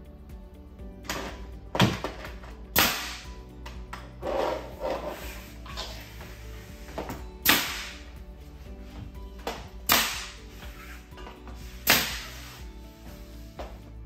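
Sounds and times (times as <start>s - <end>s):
nail gun firing: 2.7s - 3.3s, 7.4s - 8.0s, 9.9s - 10.4s, 11.8s - 12.4s.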